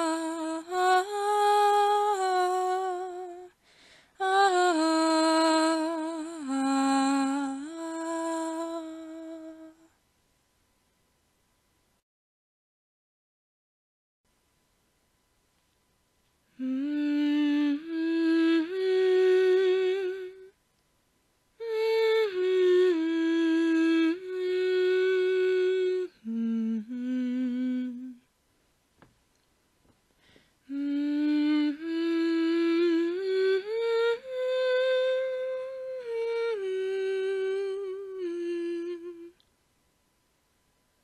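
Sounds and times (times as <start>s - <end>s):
person humming a slow melody: 0.0s - 10.0s, 16.5s - 20.6s, 21.6s - 28.3s, 30.6s - 39.5s.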